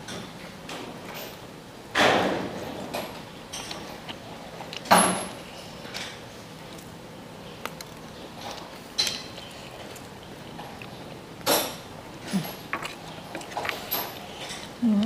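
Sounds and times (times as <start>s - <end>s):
person biting and chewing: 7.6s - 11.4s, 12.2s - 14.8s.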